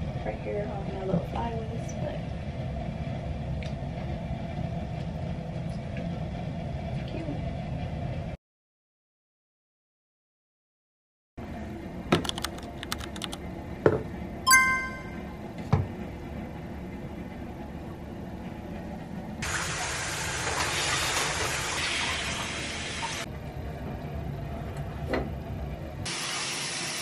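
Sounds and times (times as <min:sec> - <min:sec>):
shower water spraying: 0:19.4 - 0:23.2, 0:26.1 - 0:27.0.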